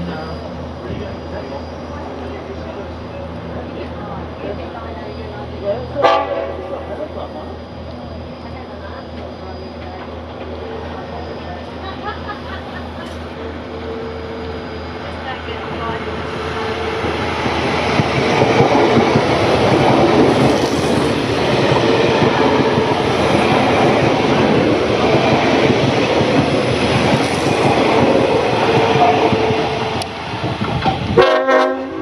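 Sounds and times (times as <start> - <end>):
train passing with rushing air: 0.0 - 32.0
train horn: 6.0 - 6.9, 31.2 - 32.0.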